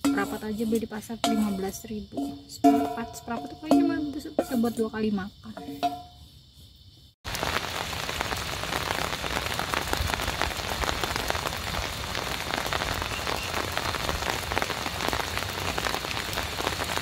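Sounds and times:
steady rain falling: 0:07.2 - 0:17.0.

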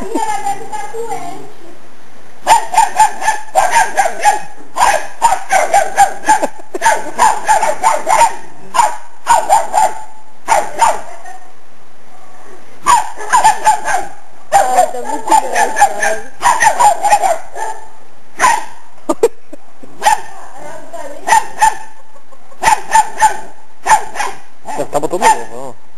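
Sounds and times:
small dogs yapping: 0:02.5 - 0:11.4, 0:12.9 - 0:18.8, 0:22.6 - 0:25.6.

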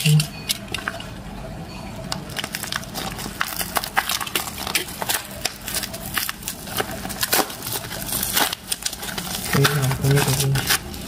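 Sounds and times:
paper wrapping being torn open: 0:02.3 - 0:11.0.

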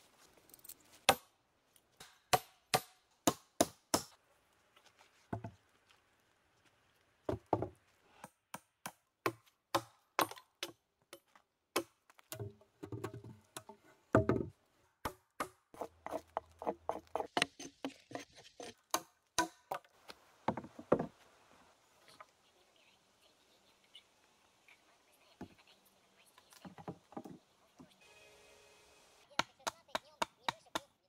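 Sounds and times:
logs landing with thuds: 0:11.8 - 0:15.6, 0:20.4 - 0:21.2
wooden knocks and chopping blows: 0:14.2 - 0:14.5, 0:20.5 - 0:21.1.

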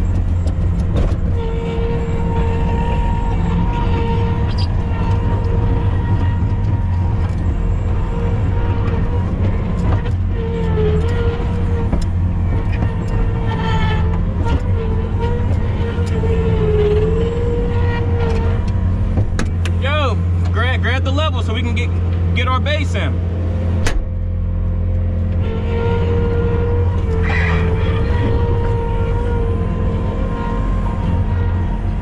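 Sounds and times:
clanks and knocks: 0:00.0 - 0:02.0, 0:03.8 - 0:19.8
diesel machine running: 0:00.0 - 0:32.0.

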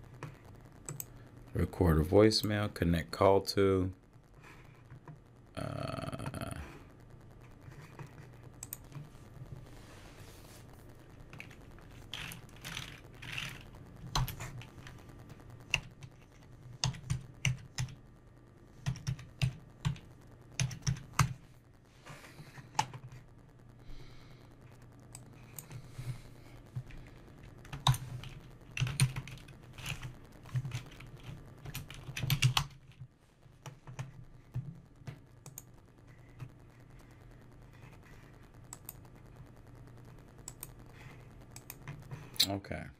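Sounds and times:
typing on computer keyboard: 0:11.3 - 0:15.0, 0:15.6 - 0:18.0, 0:18.8 - 0:21.4, 0:27.6 - 0:37.0.

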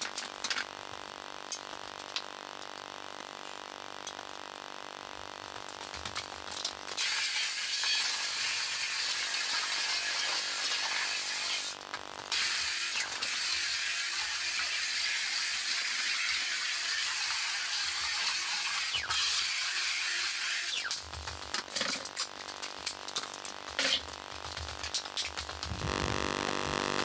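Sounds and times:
vacuum cleaner running: 0:25.7 - 0:27.0.

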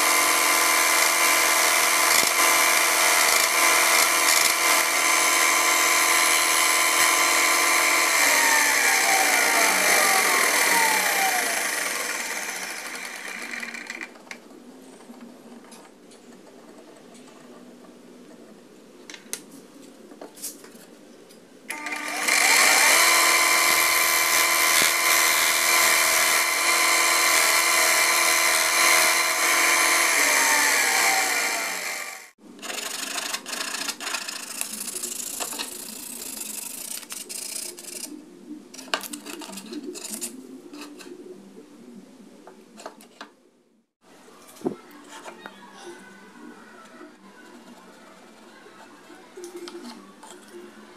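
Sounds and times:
bench grinder running: 0:00.0 - 0:14.2, 0:21.7 - 0:34.8.

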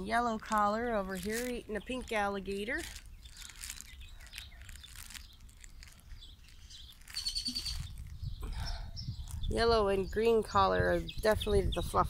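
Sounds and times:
puppies chewing toys: 0:00.4 - 0:08.1
rapid high-pitched chirping: 0:02.8 - 0:09.6.

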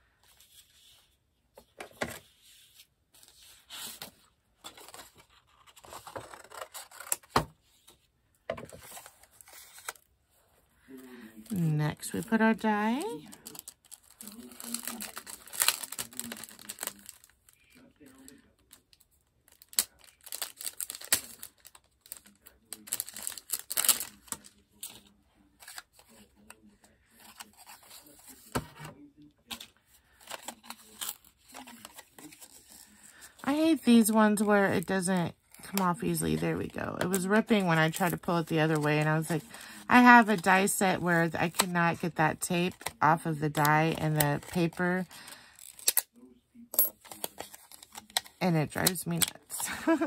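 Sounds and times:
paper and plastic crinkling: 0:00.2 - 0:08.0, 0:08.6 - 0:28.8, 0:29.4 - 0:46.1, 0:46.9 - 0:50.0
paper rustling and scraping: 0:00.2 - 0:08.0, 0:08.6 - 0:10.5, 0:29.5 - 0:33.5.

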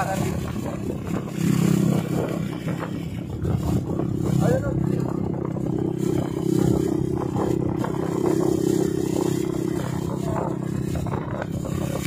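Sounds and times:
rushing wind: 0:00.0 - 0:12.0
vehicle engine drone: 0:00.0 - 0:12.0.

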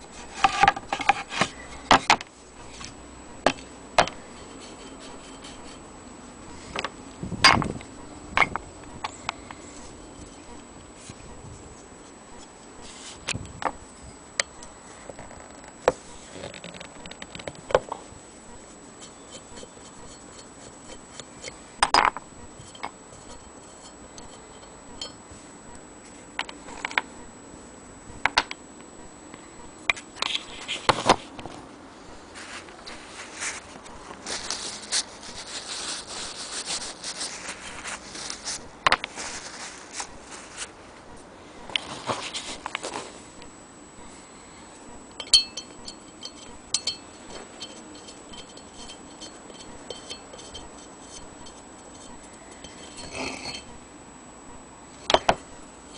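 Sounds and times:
rustling: 0:06.5 - 0:13.8, 0:30.1 - 0:43.5.

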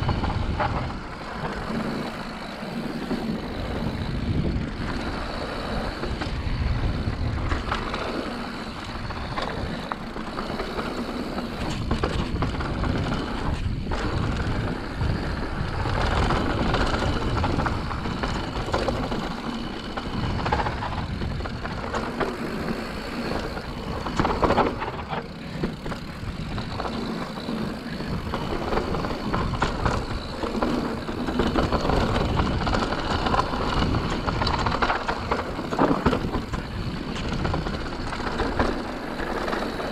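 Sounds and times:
bike chain and frame rattling: 0:00.0 - 0:39.9
bike tyres on dirt: 0:00.0 - 0:39.9
wind on microphone: 0:00.0 - 0:39.9.

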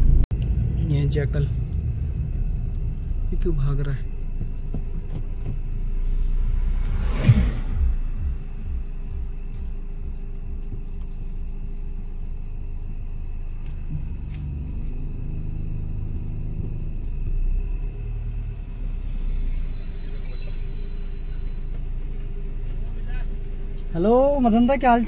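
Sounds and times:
car cabin rumble: 0:00.0 - 0:19.4.

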